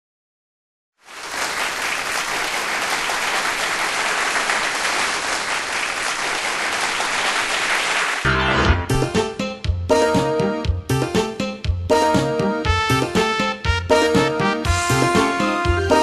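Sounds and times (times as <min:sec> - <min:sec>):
audience applauding: 0:01.0 - 0:08.4
music: 0:08.2 - 0:16.0.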